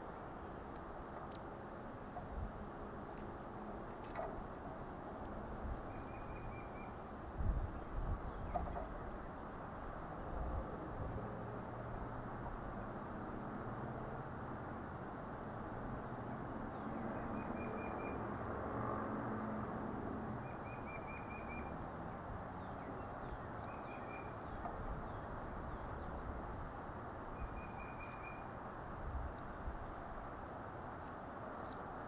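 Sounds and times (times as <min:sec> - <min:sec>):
outdoor background noise: 0:00.0 - 0:32.0
bird trilling: 0:27.4 - 0:28.5.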